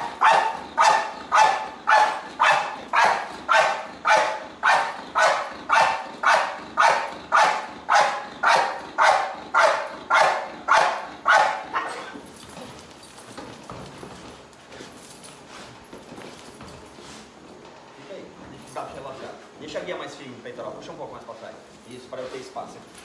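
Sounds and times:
dog barking: 0.0 - 12.2.

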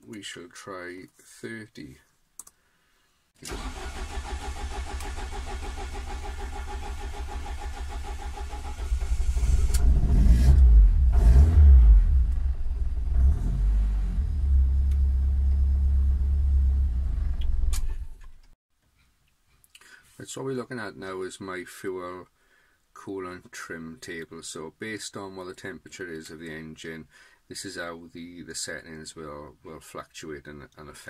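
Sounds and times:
engine cranking on starter: 3.4 - 10.6
car engine revving and idling: 4.9 - 17.8.

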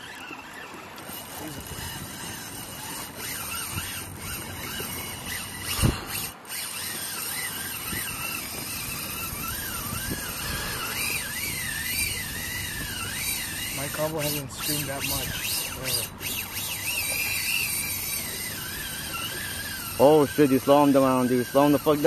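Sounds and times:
fishing reel drag squealing: 0.0 - 22.0.

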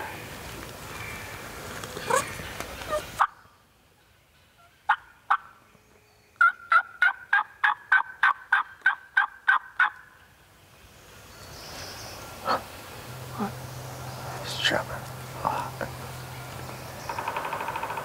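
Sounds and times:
turkey calling: 6.4 - 10.1.

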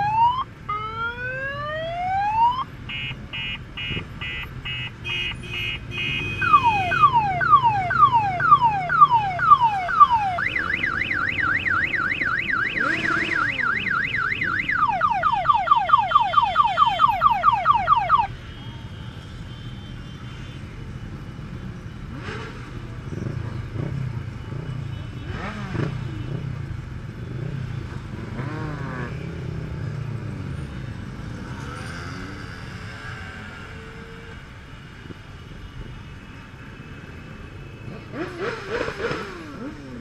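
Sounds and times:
electronic siren cycling patterns: 0.0 - 4.4, 6.4 - 18.3.

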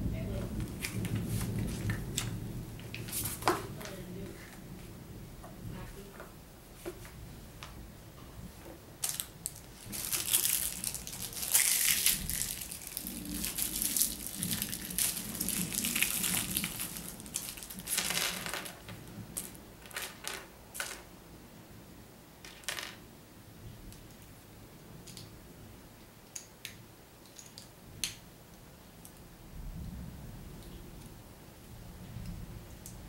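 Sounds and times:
plastic bag crinkling: 9.0 - 21.0
plastic pieces clicking: 9.0 - 21.1, 26.3 - 28.2.

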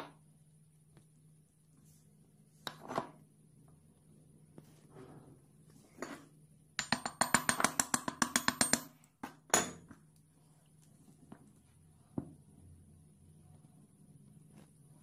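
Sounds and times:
small hammer tapping on wood: 6.8 - 8.9.

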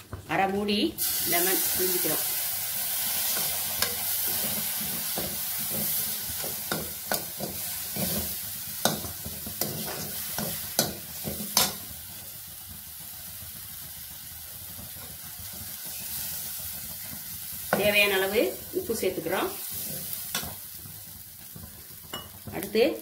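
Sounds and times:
metal spatula scraping a pan: 3.2 - 11.9.

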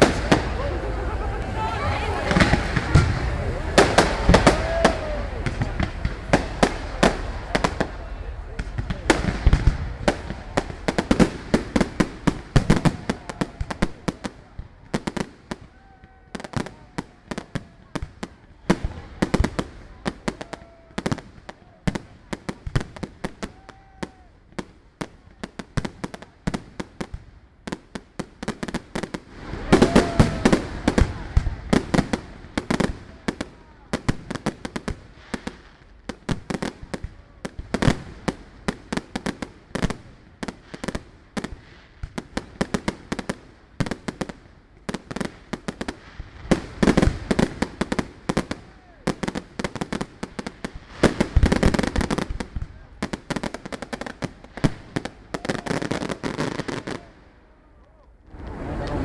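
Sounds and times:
fireworks bursting and crackling: 0.0 - 59.0.

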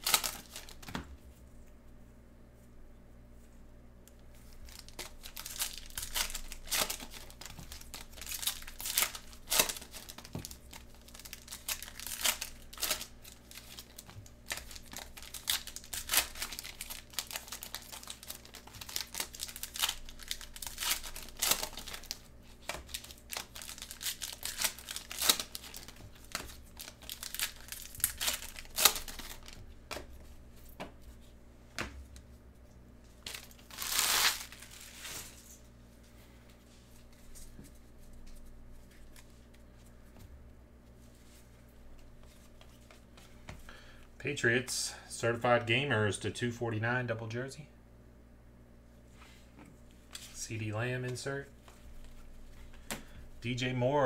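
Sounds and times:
card packaging crinkling and tearing: 0.0 - 0.9, 4.4 - 29.6, 33.2 - 35.6.

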